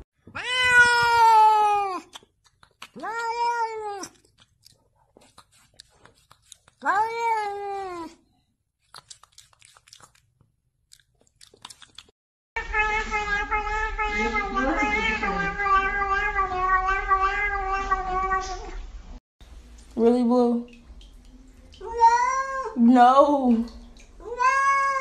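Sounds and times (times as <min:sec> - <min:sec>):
cat meowing: 0:00.3 - 0:02.1, 0:03.0 - 0:04.2, 0:12.6 - 0:18.8, 0:21.8 - 0:22.8, 0:24.2 - 0:25.0.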